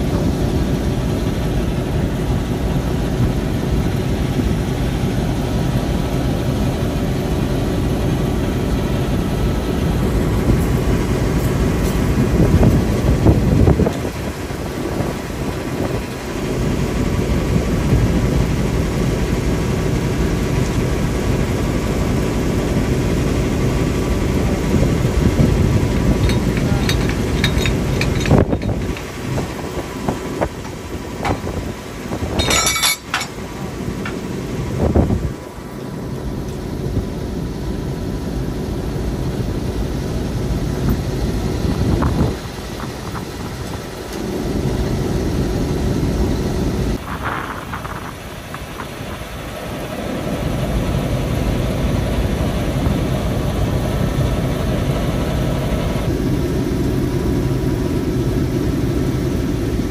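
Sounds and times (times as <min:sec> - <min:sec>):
diesel locomotive engine running: 0:00.0 - 0:59.9
sharp metallic clinks: 0:26.0 - 0:29.1, 0:32.4 - 0:33.4.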